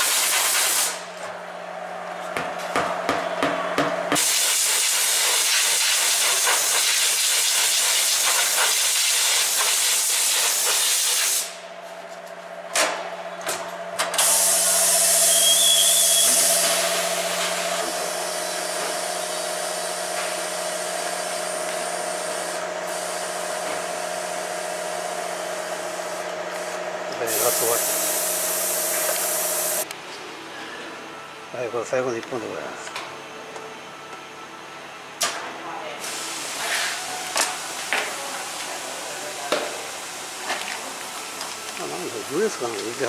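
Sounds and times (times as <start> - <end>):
compressed air hissing: 0.0 - 1.0, 4.2 - 11.6, 14.2 - 17.0, 21.1 - 24.9, 27.2 - 29.8
faint whistle: 15.2 - 16.5.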